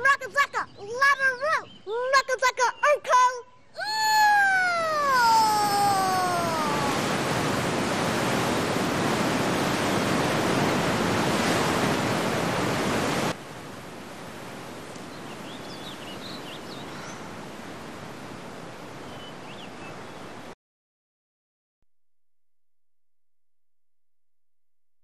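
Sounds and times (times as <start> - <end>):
loud rushing wind: 5.4 - 13.4
faint bird chirps: 15.1 - 17.3.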